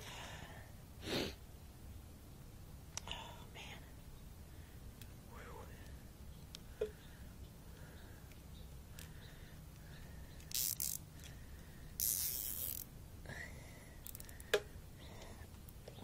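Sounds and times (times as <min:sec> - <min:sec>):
zip tie sharp click: 0:10.4 - 0:11.0, 0:12.0 - 0:12.9
zip tie zipping through catch: 0:12.0 - 0:12.9.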